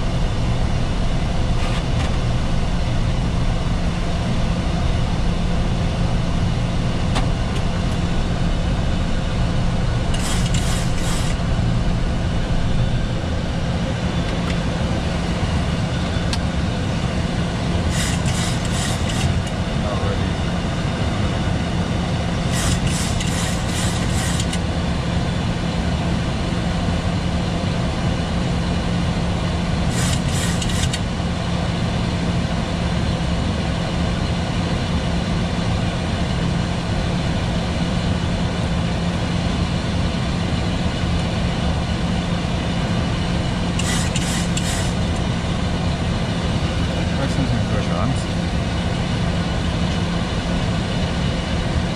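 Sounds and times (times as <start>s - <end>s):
airflow and engine noise: 0.0s - 51.9s
constant low hum: 0.0s - 51.9s.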